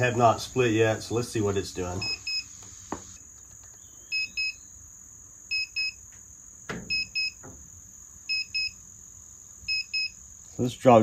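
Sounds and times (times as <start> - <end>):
moisture meter double beeps: 2.0 - 2.5, 4.1 - 4.6, 5.5 - 6.0, 6.9 - 7.4, 8.3 - 8.8, 9.7 - 10.2.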